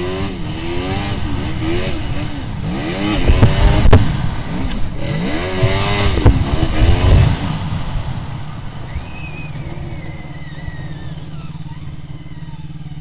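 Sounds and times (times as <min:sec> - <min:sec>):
snowmobile engine revving: 0:00.0 - 0:13.0
faint high whine: 0:07.5 - 0:13.0.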